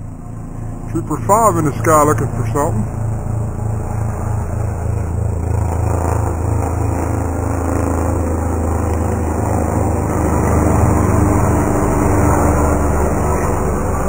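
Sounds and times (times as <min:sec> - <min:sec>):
distant helicopter drone: 0:00.0 - 0:14.0.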